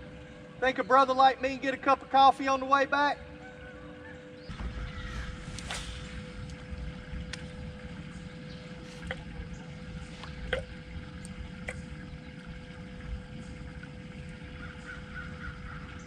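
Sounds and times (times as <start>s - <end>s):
boat engine rumble: 0.0s - 16.0s
thin steady hum: 0.0s - 16.0s.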